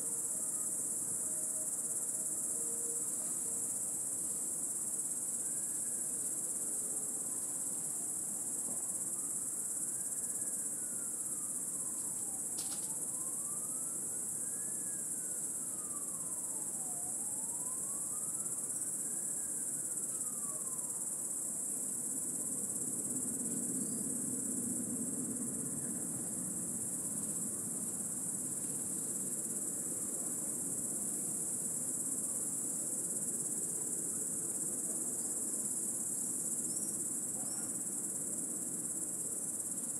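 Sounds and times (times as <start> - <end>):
distant siren wailing: 0.0 - 4.6, 5.3 - 21.7
cicadas buzzing: 0.0 - 24.4.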